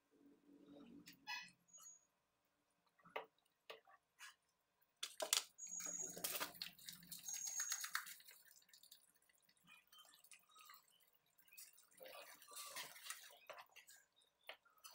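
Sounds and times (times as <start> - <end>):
gravy bubbling and popping in a pan: 2.6 - 14.9.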